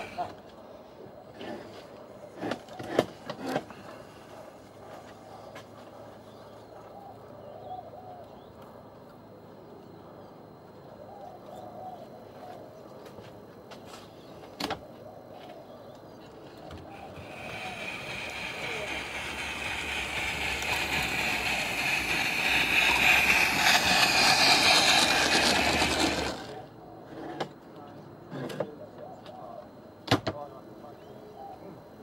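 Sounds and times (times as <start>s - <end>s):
faint birds calling: 5.2s - 8.7s.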